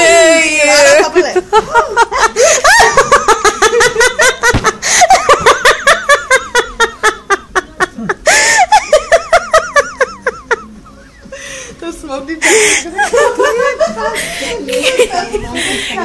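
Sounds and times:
person laughing heartily: 1.6 - 10.8.

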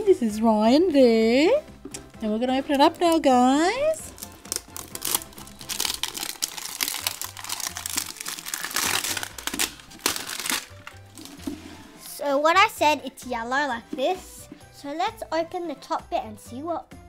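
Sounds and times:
soft background music: 0.0 - 17.0
wrapper tearing and crackling: 4.1 - 11.4.

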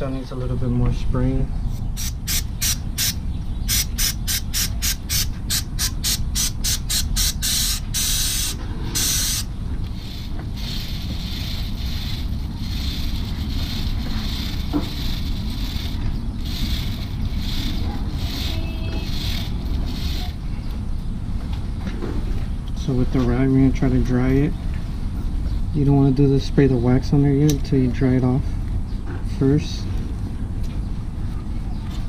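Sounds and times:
steady low rumble: 0.0 - 32.0
aerosol spray bursts: 2.0 - 14.0
stiff brush scrubbing chain: 3.7 - 20.4.

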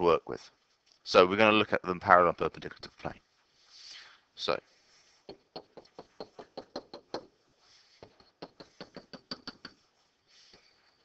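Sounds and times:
stylus tapping on tablet screen: 5.3 - 7.3, 8.0 - 9.8.

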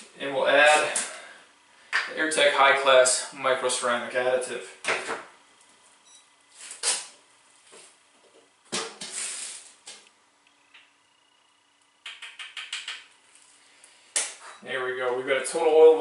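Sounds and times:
hissing rustle: 9.0 - 9.8.

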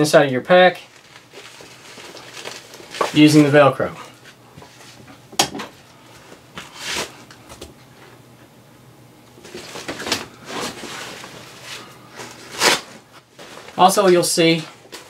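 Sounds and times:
velcro tearing rasps: 12.5 - 12.9.

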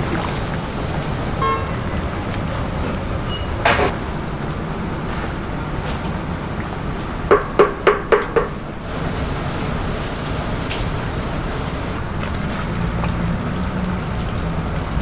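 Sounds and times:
soup boiling hard: 0.0 - 1.5, 8.8 - 12.0.

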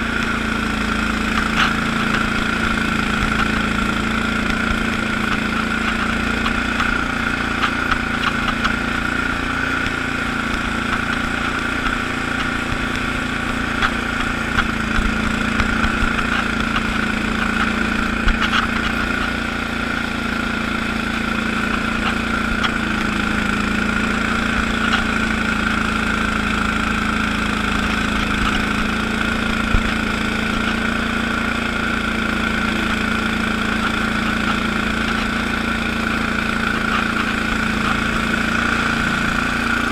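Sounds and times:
garden tractor engine running: 0.0 - 39.9.

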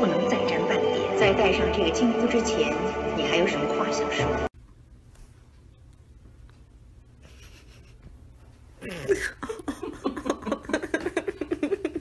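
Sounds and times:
person laughing: 7.2 - 8.1, 8.8 - 12.0.

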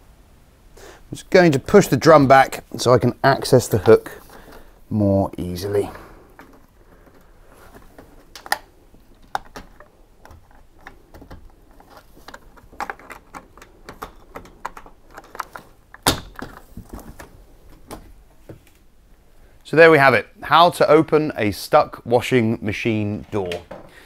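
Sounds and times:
hands clicking and tapping lock: 6.4 - 18.6.

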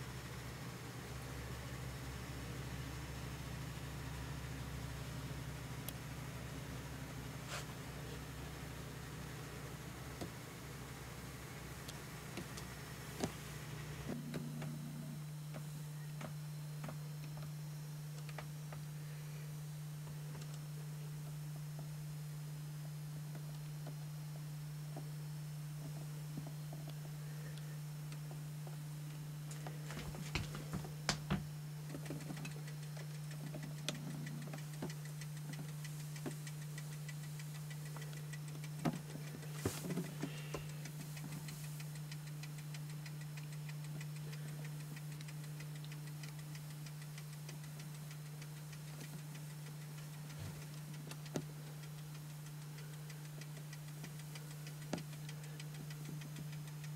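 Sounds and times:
low electrical hum: 0.0 - 56.9
faint ticking: 29.4 - 56.9.

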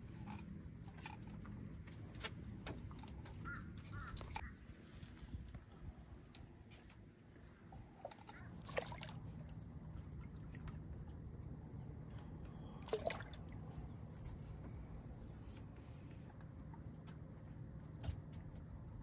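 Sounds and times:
water sloshing: 7.4 - 18.9
short water splashes: 7.8 - 11.8, 12.8 - 14.1.

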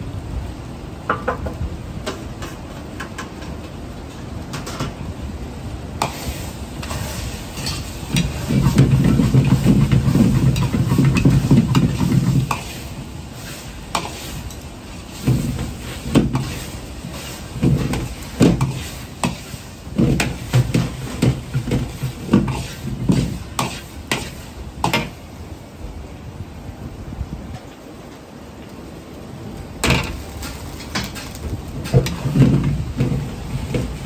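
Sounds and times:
metal ladle scraping a wok: 6.0 - 25.1
food sizzling: 6.0 - 25.2, 29.8 - 34.0.

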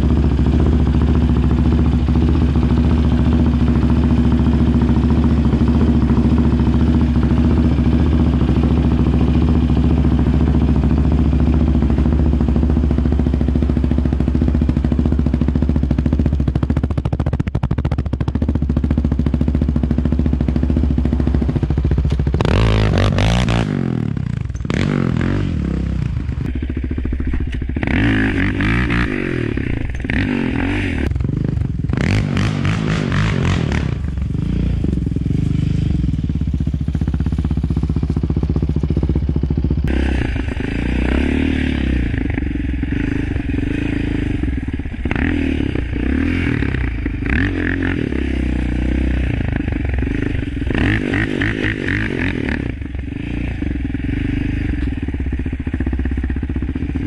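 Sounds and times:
engine revving: 18.8 - 36.1, 39.3 - 57.0.

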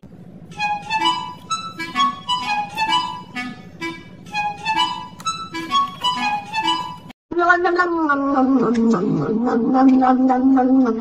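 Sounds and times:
lively bouncy melody: 0.5 - 7.1.

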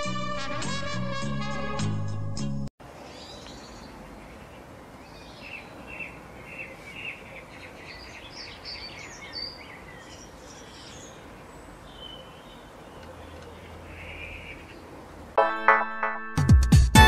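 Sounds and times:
outdoor background hiss: 2.8 - 15.4
small birds chirping: 2.9 - 15.1.

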